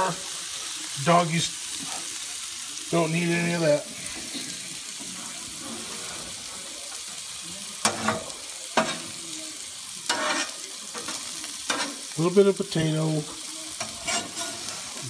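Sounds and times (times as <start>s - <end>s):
food sizzling on griddle: 0.0s - 15.0s
metal spatula clacking on griddle: 7.8s - 9.1s, 10.1s - 12.0s, 13.8s - 14.8s.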